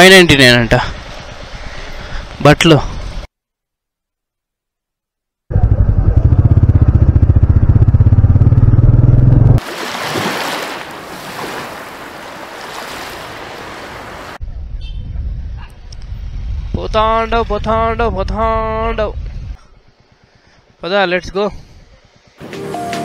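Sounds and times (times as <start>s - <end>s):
motorcycle engine pulsing: 5.5s - 9.6s
surf washing onto beach: 9.6s - 14.4s.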